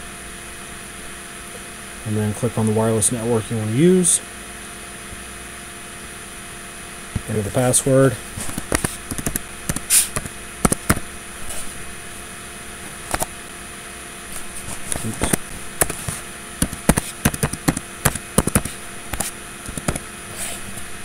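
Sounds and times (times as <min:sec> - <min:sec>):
steady hum: 0:00.0 - 0:21.0
keyboard keys clicking: 0:16.6 - 0:20.0.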